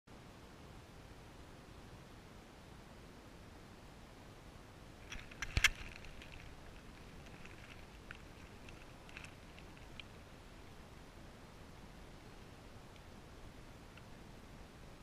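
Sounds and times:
bone cracking: 5.0s - 10.1s.

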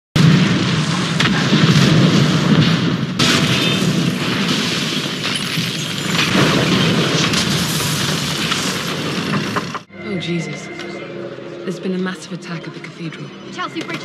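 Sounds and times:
heavy explosion blasts: 0.2s - 9.9s.

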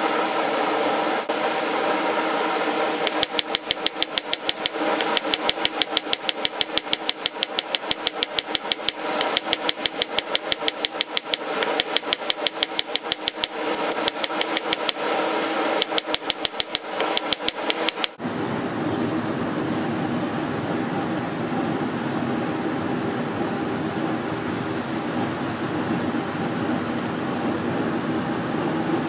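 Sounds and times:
hammer striking steel on anvil: 3.0s - 15.0s, 15.6s - 18.2s.

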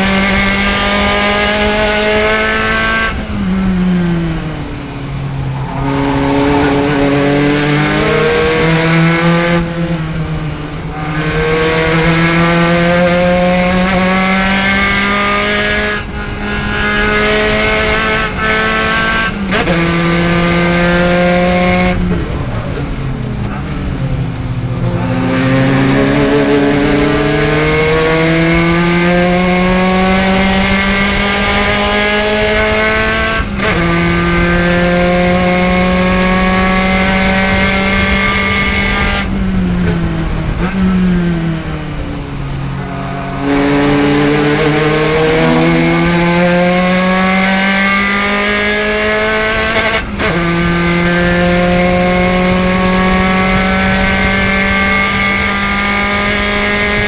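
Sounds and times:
race car engine revving: 0.0s - 57.0s.

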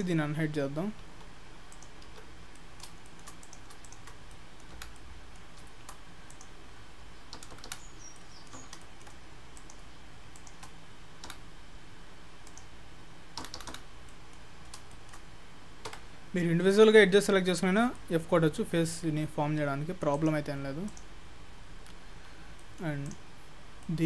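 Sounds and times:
steady low hum: 0.0s - 24.0s
mouse buttons clicking: 1.2s - 6.5s, 7.3s - 11.4s
keyboard keys clicking: 1.7s - 6.5s, 7.3s - 11.4s, 13.4s - 15.2s.

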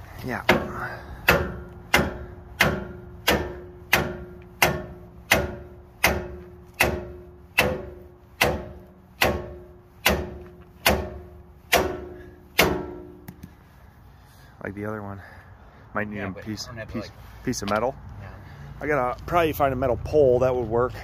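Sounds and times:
hammer pounding on steel: 0.4s - 13.4s.

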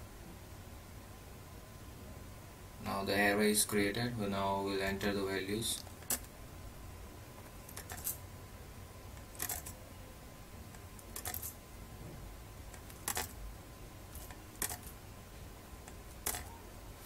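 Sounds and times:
low steady hum: 0.0s - 17.0s
keyboard and mouse clicking: 12.7s - 13.3s, 14.2s - 14.9s, 15.8s - 16.6s.

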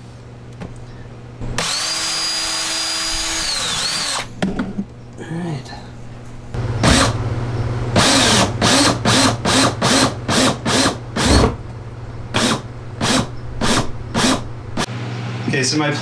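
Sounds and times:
power drill drilling: 1.6s - 4.3s, 8.0s - 11.4s, 12.4s - 14.9s.

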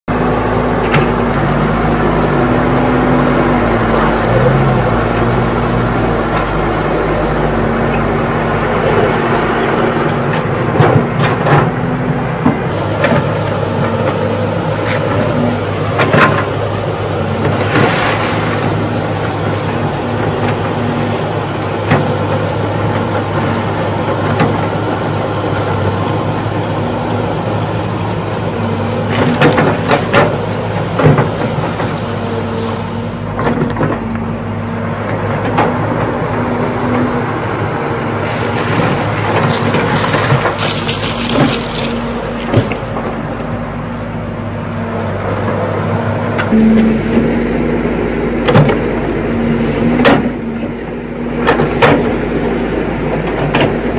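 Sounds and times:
excavator diesel engine under load: 0.0s - 53.9s.

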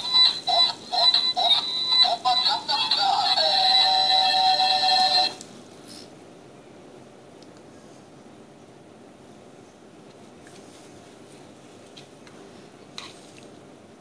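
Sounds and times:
toy playing electronic tune: 0.0s - 5.4s.

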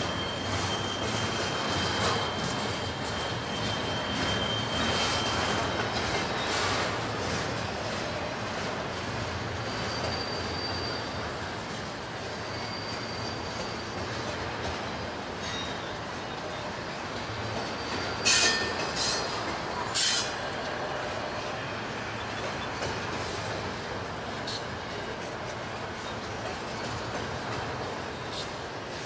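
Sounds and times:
thin high squeal: 0.0s - 7.0s, 9.4s - 11.6s, 12.2s - 14.4s, 17.6s - 21.7s
wheel screeches: 0.0s - 7.4s, 9.2s - 11.6s, 12.2s - 14.4s, 17.5s - 23.5s
train wheels rumbling on rail: 0.0s - 29.0s.

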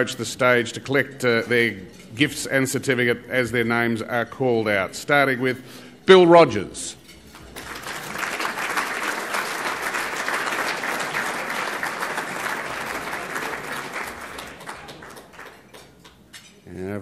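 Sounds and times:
audience applauding: 7.4s - 16.2s.

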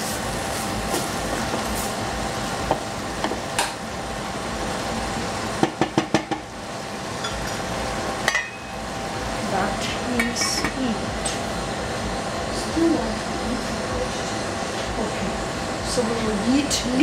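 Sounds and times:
squash sizzling in a pan: 0.0s - 3.7s
spatula knocking on pan: 5.6s - 6.5s.

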